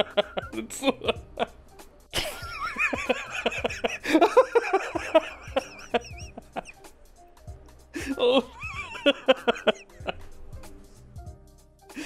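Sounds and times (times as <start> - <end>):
man laughing hard: 0.0 - 1.6, 2.2 - 6.8, 8.0 - 10.2.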